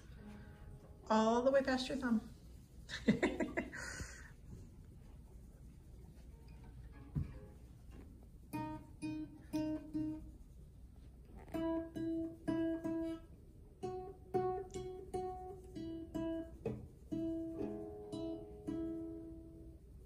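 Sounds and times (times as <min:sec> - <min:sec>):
classical guitar plucked slowly: 0:06.5 - 0:10.4, 0:11.4 - 0:19.9.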